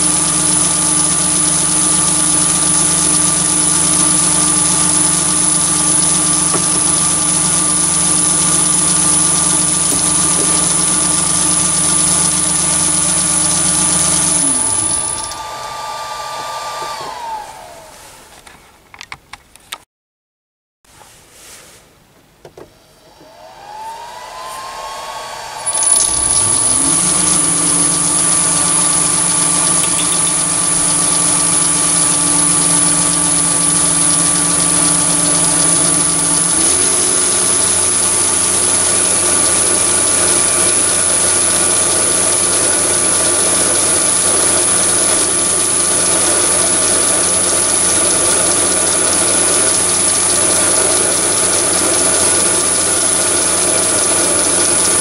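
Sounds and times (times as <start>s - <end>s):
drill boring into steel: 0.0s - 17.9s, 23.1s - 55.0s
lathe motor whine: 0.0s - 18.4s, 22.8s - 55.0s.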